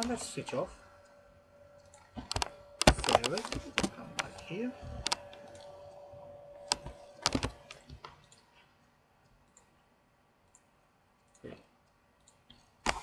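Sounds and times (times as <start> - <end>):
faint steady hum: 0.0 - 13.0
keyboard and mouse clicks: 1.8 - 5.8, 6.6 - 13.0.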